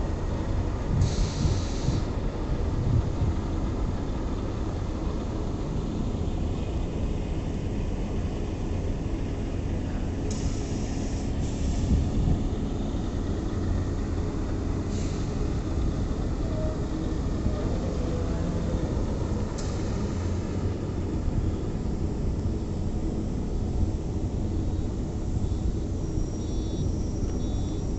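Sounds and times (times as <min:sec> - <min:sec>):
machinery rumbling: 0:00.1 - 0:27.9
faint hum: 0:10.8 - 0:27.9.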